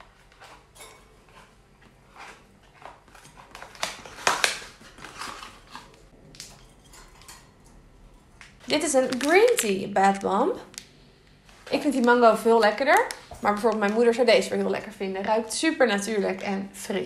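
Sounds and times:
plastic wrapper crinkling: 3.1 - 6.6, 8.6 - 15.0.

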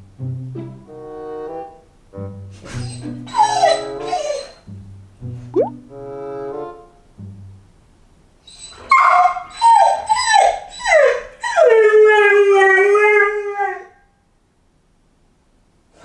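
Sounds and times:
puppy whining: 2.6 - 4.7, 8.5 - 13.9.

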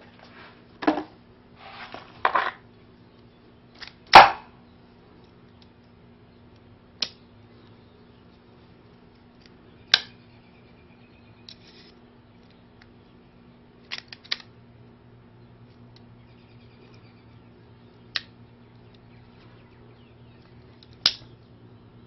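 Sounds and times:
loud metallic snap: 4.1 - 4.5, 21.0 - 21.3
multitool handling clicks and rustles: 5.1 - 10.2, 13.8 - 14.6, 20.4 - 21.4
small sharp clicks: 18.0 - 19.1, 20.4 - 21.3.

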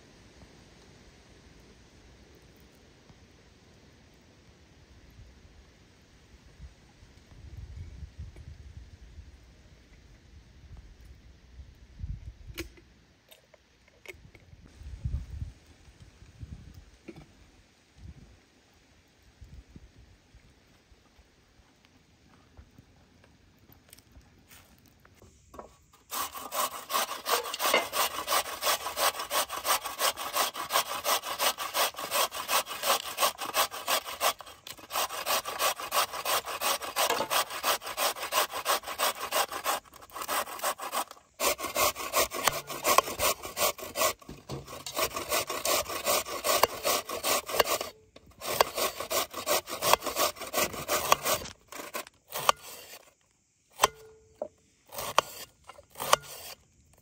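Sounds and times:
carrot grated on metal grater: 26.1 - 53.0, 54.9 - 56.6.

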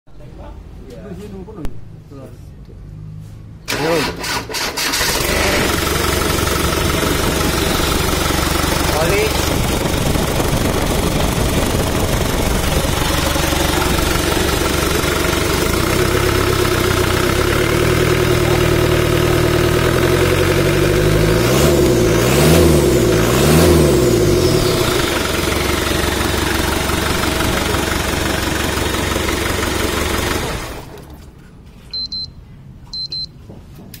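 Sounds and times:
diesel engine idling and revving: 3.1 - 31.2
short high beeps: 31.9 - 33.4.

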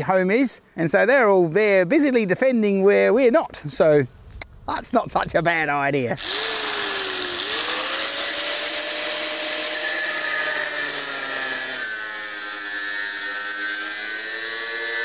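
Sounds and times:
angle grinder cutting metal: 6.2 - 15.0.

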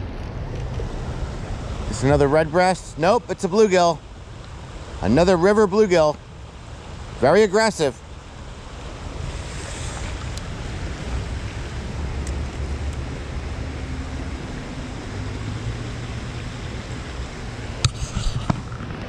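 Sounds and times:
river water rushing: 0.0 - 19.0
wind rumbling on microphone: 8.1 - 19.0.

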